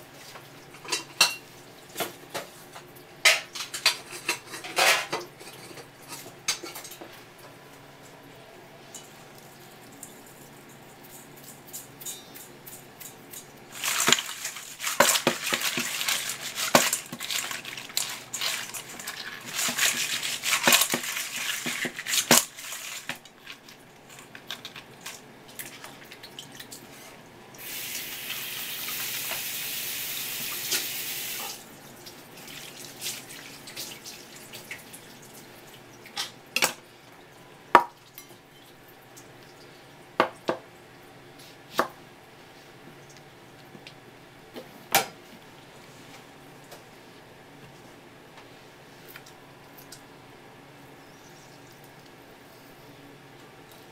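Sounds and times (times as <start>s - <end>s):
wet rustling of crab pieces: 13.6s - 27.1s
running tap water hiss: 27.6s - 31.6s.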